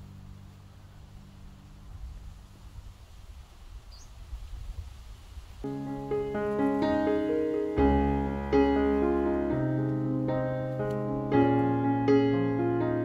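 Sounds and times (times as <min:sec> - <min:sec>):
slow solo piano: 0:05.6 - 0:13.0.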